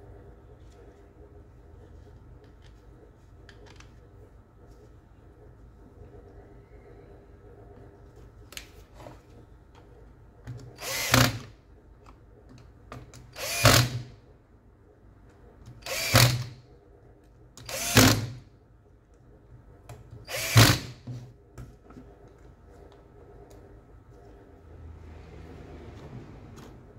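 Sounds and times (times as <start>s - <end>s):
cordless drill running: 10.8s - 11.5s, 13.4s - 14.1s, 15.8s - 16.6s, 17.6s - 18.4s, 20.3s - 21.0s.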